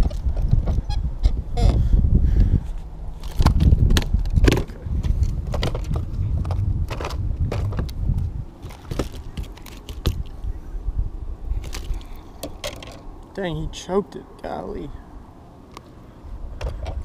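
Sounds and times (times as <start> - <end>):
low rumble: 0.0 - 8.6.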